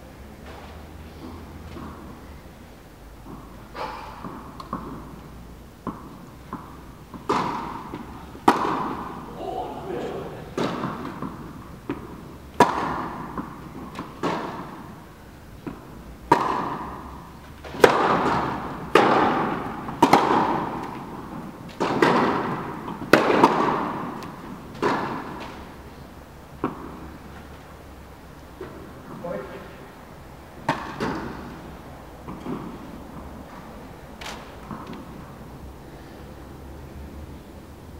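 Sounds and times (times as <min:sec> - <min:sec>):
tennis ball bouncing: 0:00.4 - 0:02.4, 0:03.2 - 0:25.8, 0:26.5 - 0:27.6, 0:30.6 - 0:33.6, 0:34.2 - 0:35.4
racket striking ball: 0:03.2 - 0:05.1, 0:05.8 - 0:15.0, 0:15.6 - 0:25.7, 0:30.6 - 0:32.8.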